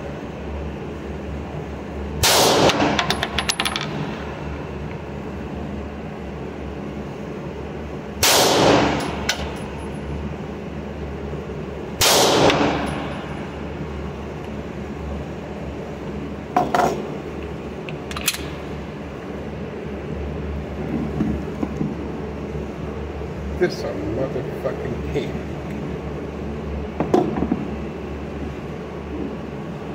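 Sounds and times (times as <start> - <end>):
pistol shots with ringing echo: 2.2 - 3.0, 8.2 - 9.2, 12.0 - 13.1.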